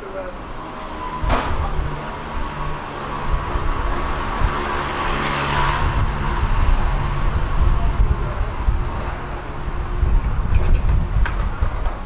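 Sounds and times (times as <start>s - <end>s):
vehicle passing: 0.2s - 11.7s
steady low rumble: 5.8s - 12.0s.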